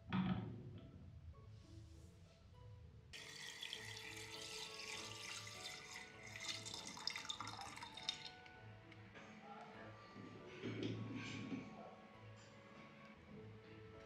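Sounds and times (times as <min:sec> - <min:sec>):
liquid pouring into plastic tank: 0:03.2 - 0:08.5.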